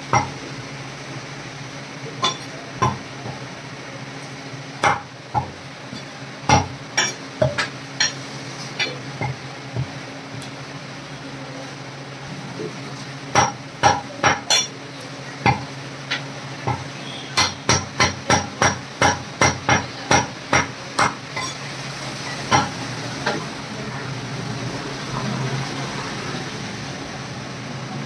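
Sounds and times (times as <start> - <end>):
cleaver chopping meat on wood: 2.2 - 3.4, 4.8 - 5.6, 6.5 - 7.7, 13.4 - 14.7, 15.4 - 15.7, 16.6 - 21.2, 22.5 - 22.7.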